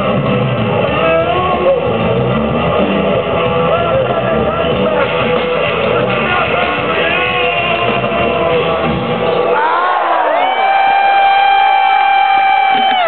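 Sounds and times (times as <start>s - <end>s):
electric guitar: 0.0s - 9.6s, 10.3s - 13.0s
bass guitar: 0.0s - 13.0s
drums: 0.0s - 13.0s
person singing: 0.8s - 2.2s, 3.2s - 9.7s.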